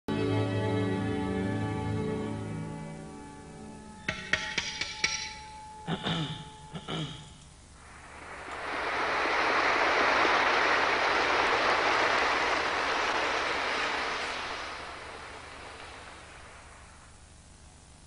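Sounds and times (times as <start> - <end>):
audience applauding: 7.8 - 17.2.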